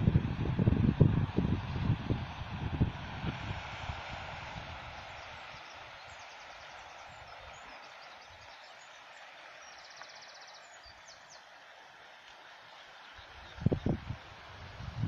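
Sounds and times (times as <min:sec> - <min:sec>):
small birds chirping: 0:04.9 - 0:11.6, 0:12.2 - 0:14.2.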